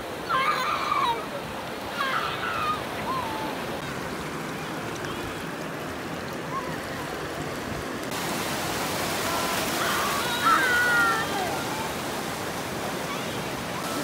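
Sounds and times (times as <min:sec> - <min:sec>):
surf washing over sand: 0:00.0 - 0:14.0
children's voices: 0:00.2 - 0:03.7, 0:09.4 - 0:12.0, 0:12.9 - 0:14.0.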